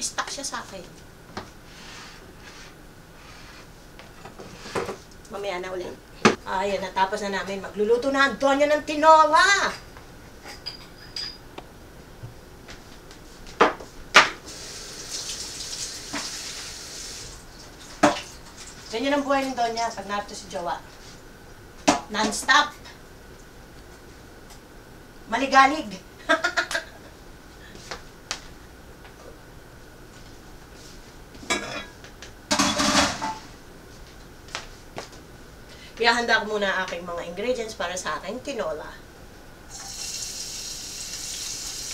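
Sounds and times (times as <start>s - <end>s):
kitchen tap running: 14.5s - 18.4s, 39.7s - 41.9s
dishes and pot clattering: 31.5s - 33.4s.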